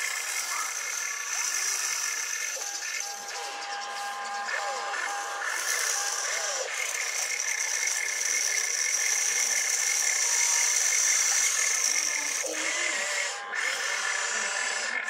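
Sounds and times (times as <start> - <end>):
small electric motors whining: 0.0 - 15.0.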